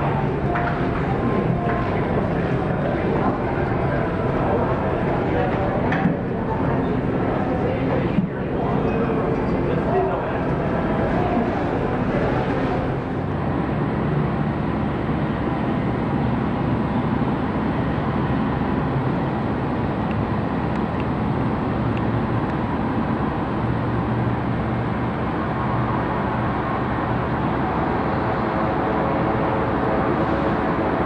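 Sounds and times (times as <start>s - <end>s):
low hum: 0.0s - 15.9s
multi-tone whine: 0.0s - 23.9s
aircraft engines running: 0.0s - 31.0s.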